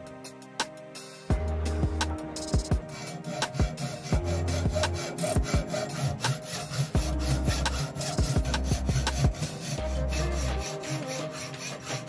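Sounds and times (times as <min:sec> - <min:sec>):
electronic music with bass and kicks: 0:00.0 - 0:11.4
hand tool scraping on wood: 0:02.8 - 0:12.0.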